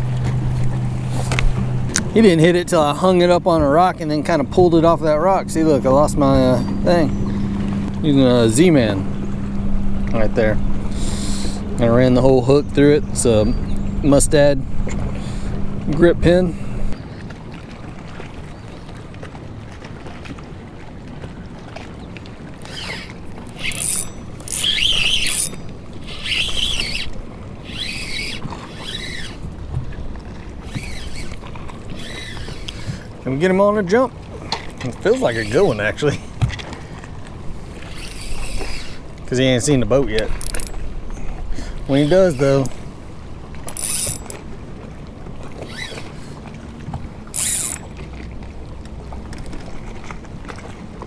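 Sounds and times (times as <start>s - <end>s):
fishing reel whirring: 22.6s - 29.5s, 30.6s - 33.1s, 35.0s - 36.0s, 37.6s - 39.1s, 40.3s - 40.8s, 41.9s - 42.8s, 43.6s - 44.4s, 45.6s - 46.4s, 47.2s - 48.0s.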